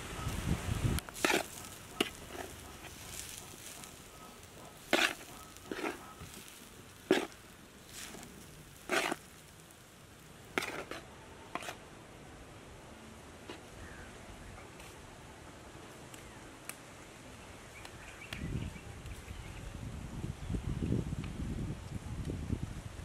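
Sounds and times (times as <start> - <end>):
faint steady hiss: 0.0 - 23.0
metal spoon scraping metal tray: 8.9 - 9.2, 10.6 - 11.8.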